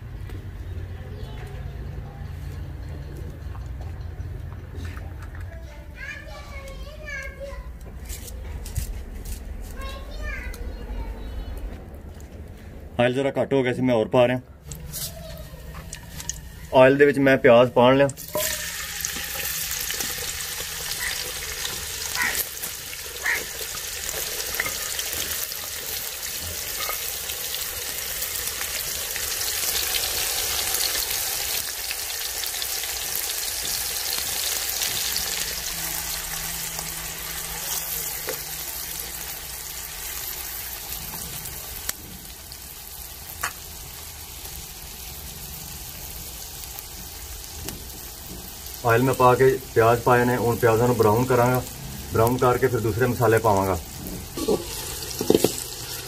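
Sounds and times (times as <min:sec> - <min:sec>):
onions sizzling in hot oil: 0:14.8 - 0:56.0.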